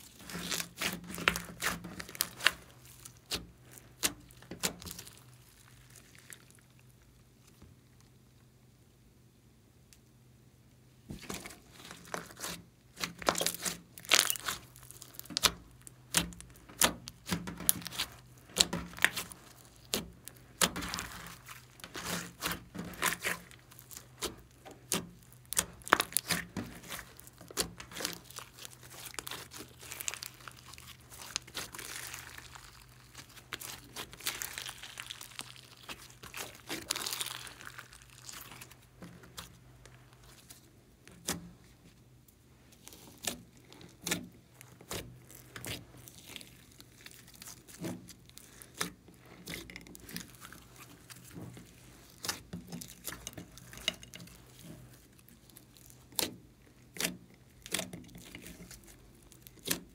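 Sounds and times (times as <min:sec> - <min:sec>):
sticky slime crackle: 0:00.0 - 0:08.4, 0:11.2 - 0:59.9
slime clicking and popping: 0:13.0 - 0:39.5.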